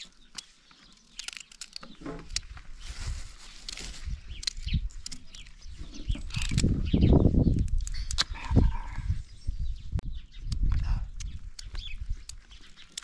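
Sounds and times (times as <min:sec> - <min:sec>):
plastic rustling: 0:00.7 - 0:04.5.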